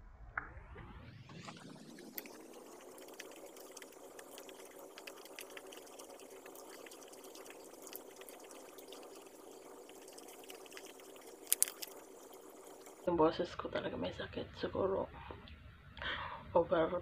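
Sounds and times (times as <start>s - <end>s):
room hum: 0.0s - 17.0s
faint chewing: 2.0s - 13.1s
fingers picking at food: 11.5s - 11.9s.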